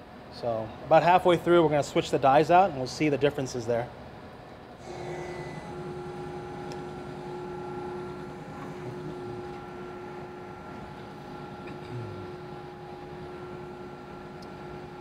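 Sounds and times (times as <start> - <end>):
electric motor humming: 4.8 - 15.0.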